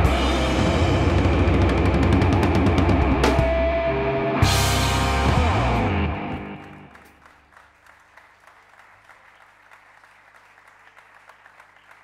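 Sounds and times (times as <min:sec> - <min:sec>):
rock band final chord: 0:00.0 - 0:06.9
audience applauding: 0:06.3 - 0:12.0.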